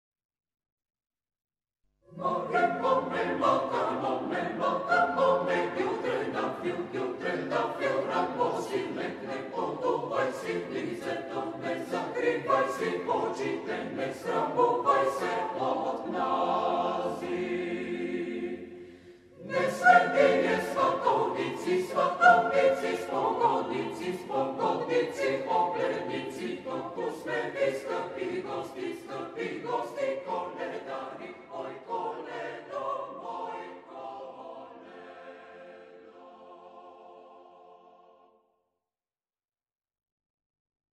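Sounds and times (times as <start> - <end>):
mixed choir singing a cappella: 2.1 - 38.4.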